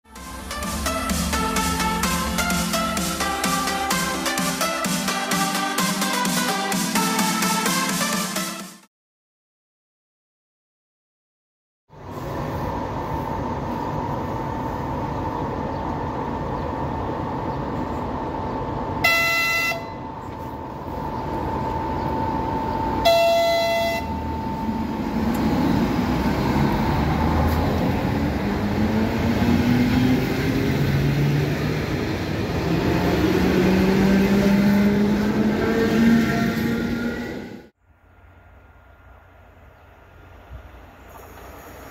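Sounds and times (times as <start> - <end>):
train running noise: 0.1 - 8.1, 11.9 - 41.9
train horn blasts: 19.0 - 20.1, 23.0 - 24.3
train motors whining: 20.0 - 41.9.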